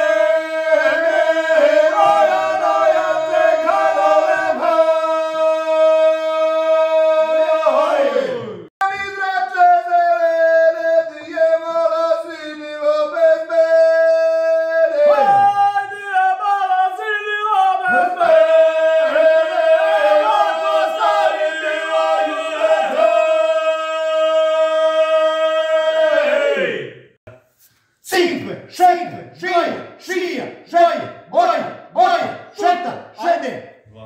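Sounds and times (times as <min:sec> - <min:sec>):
men singing unaccompanied: 0:00.0 - 0:08.7, 0:09.5 - 0:26.1.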